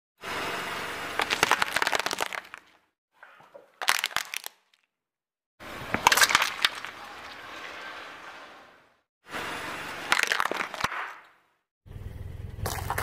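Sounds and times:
loud crunch: 0:01.1 - 0:02.8, 0:03.7 - 0:04.9, 0:05.9 - 0:07.0, 0:10.1 - 0:11.3, 0:12.6 - 0:13.0
rustling crackle: 0:01.1 - 0:02.8
tyre crushing objects with crackling: 0:01.2 - 0:02.6, 0:10.1 - 0:11.1, 0:12.6 - 0:13.0.

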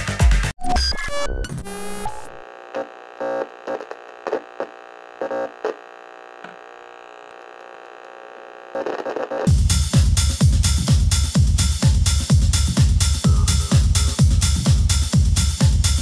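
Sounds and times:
steady electronic hum: 0:01.8 - 0:09.5, 0:13.2 - 0:15.3
muted music track: 0:09.5 - 0:16.0
loud electronic stabs: 0:12.2 - 0:16.0.

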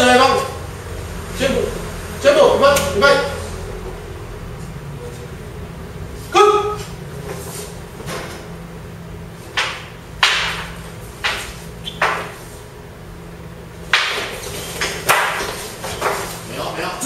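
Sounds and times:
wooden shafts clacking together: 0:09.5 - 0:12.4, 0:13.9 - 0:16.3.

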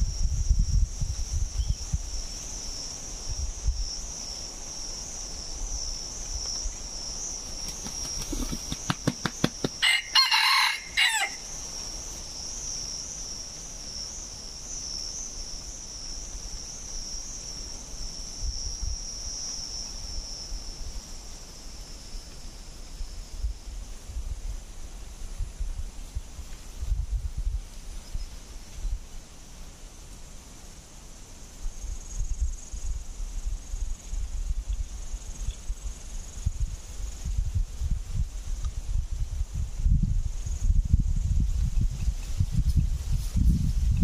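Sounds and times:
wings flapping: 0:07.4 - 0:09.8
rooster crowing: 0:09.8 - 0:11.5.

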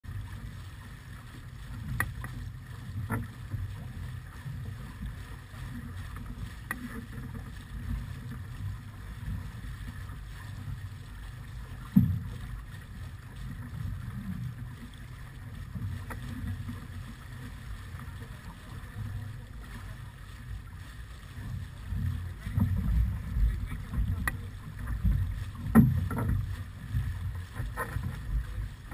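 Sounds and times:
water rushing along hull: 0:00.0 - 0:28.9
wind buffeting microphone: 0:21.6 - 0:28.9.

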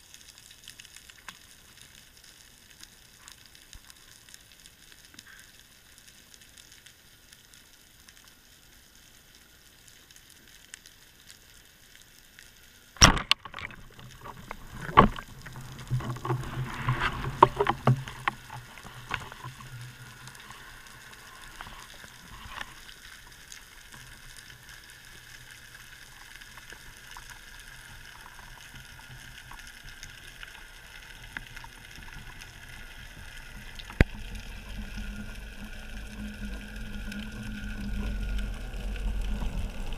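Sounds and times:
speargun firing crack: 0:13.0 - 0:13.5
single click: 0:13.0 - 0:13.7
underwater hiss: 0:14.3 - 0:39.9.

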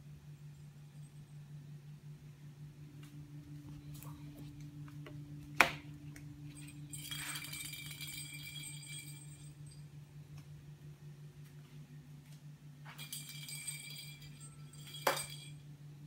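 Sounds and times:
steady low hum: 0:00.0 - 0:16.0
plastic ball jingling and rattling: 0:06.6 - 0:09.6, 0:12.9 - 0:15.6.

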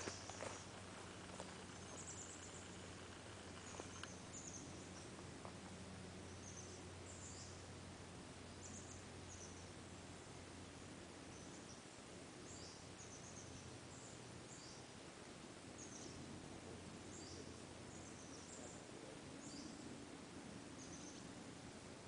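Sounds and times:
low hum: 0:00.0 - 0:14.4.

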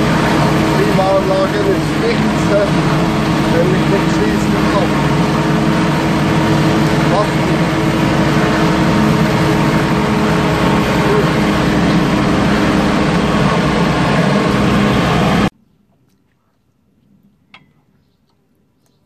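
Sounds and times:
tractor engine droning: 0:00.0 - 0:15.5.

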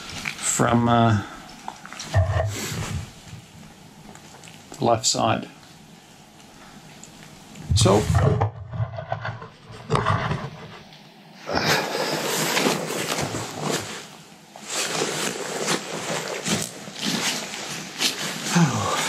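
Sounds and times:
rain clothing rustling: 0:11.7 - 0:19.0.

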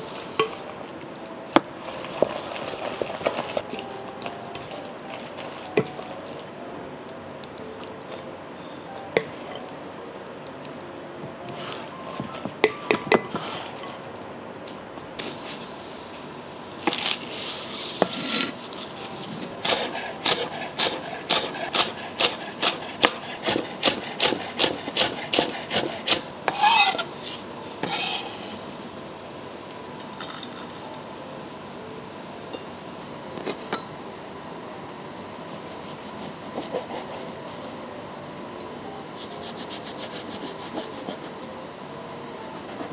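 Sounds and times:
knife blade scraping board: 0:17.4 - 0:18.6, 0:19.6 - 0:27.1, 0:27.8 - 0:28.6
knife chopping on wooden board: 0:19.6 - 0:26.9.

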